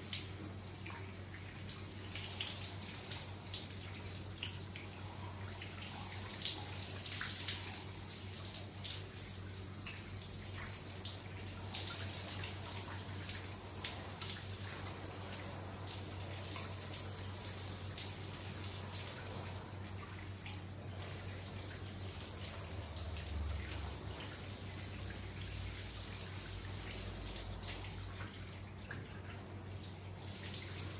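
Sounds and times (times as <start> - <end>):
water dripping: 0.0 - 30.9
shower spray splashing: 30.1 - 30.9.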